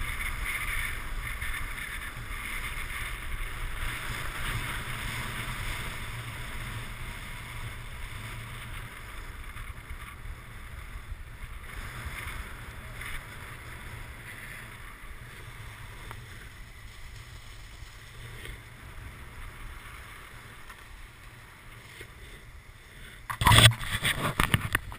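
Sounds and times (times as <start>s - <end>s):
skis hissing over packed snow: 0.0s - 24.3s
wind rushing over microphone: 23.2s - 24.9s.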